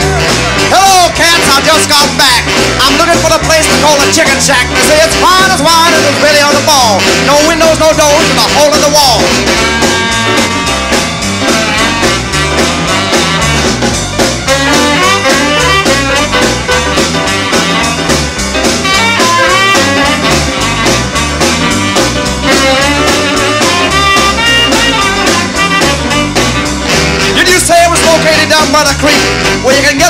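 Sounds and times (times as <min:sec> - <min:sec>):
drums and bass beat: 0:00.0 - 0:30.0
piano: 0:00.0 - 0:30.0
saxophone: 0:00.0 - 0:30.0.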